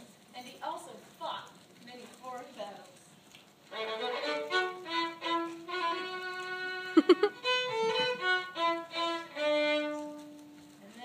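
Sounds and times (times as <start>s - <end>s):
solo violin melody: 3.7s - 10.6s.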